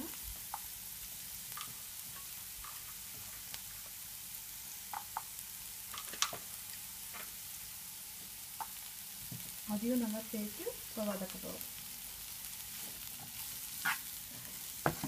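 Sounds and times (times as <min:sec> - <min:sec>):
vegetables sizzling in frying pan: 0:00.0 - 0:15.0.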